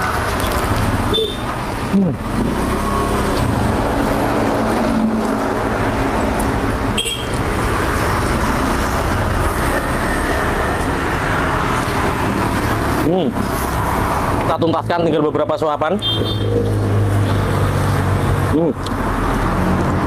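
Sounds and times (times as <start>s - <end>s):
road traffic noise: 0.0s - 20.0s
passing vehicle engine drone: 1.8s - 15.5s.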